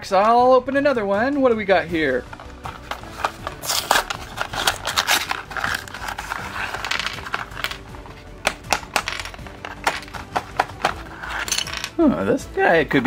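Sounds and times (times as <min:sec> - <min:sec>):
plastic pieces clicking on table: 0:02.8 - 0:12.0.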